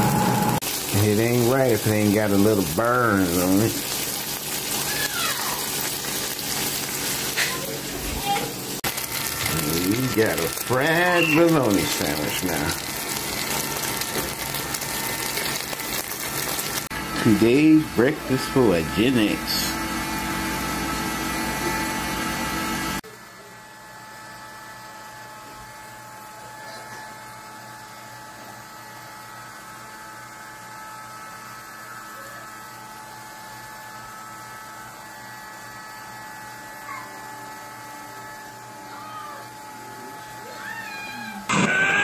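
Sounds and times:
electric hum with fixed tones: 0:00.0 - 0:23.6.

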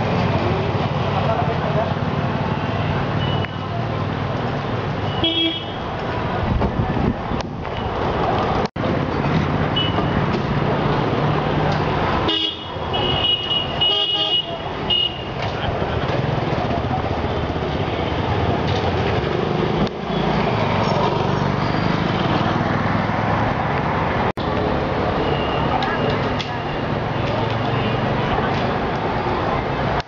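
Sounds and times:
traffic engines running: 0:00.0 - 0:30.0
vehicle horn toots: 0:05.1 - 0:05.8, 0:12.3 - 0:15.3.

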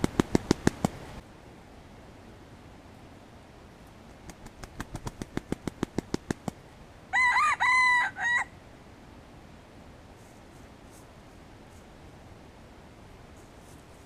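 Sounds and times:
rooster wings clapping: 0:00.0 - 0:01.0, 0:04.1 - 0:06.6
rooster crowing: 0:07.1 - 0:08.6.

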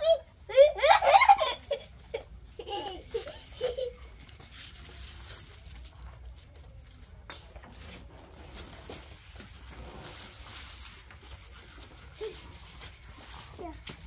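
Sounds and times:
cows chewing fodder: 0:04.1 - 0:14.0.

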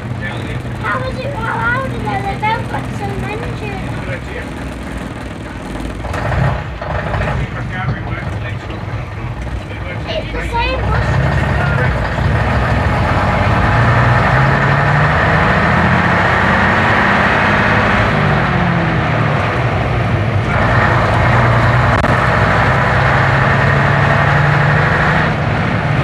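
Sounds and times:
bus diesel engine: 0:00.0 - 0:26.0.

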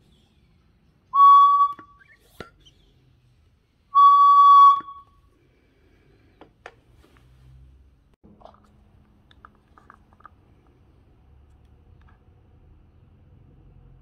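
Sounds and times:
high air whistle: 0:01.1 - 0:02.2, 0:03.9 - 0:05.3.

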